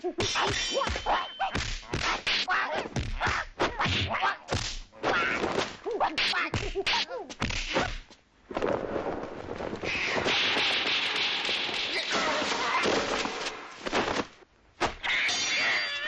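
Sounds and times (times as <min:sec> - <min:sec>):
fighters shouting and grunting: 0:00.0 - 0:07.9, 0:11.9 - 0:13.4
punch and kick whacks: 0:00.2 - 0:05.8.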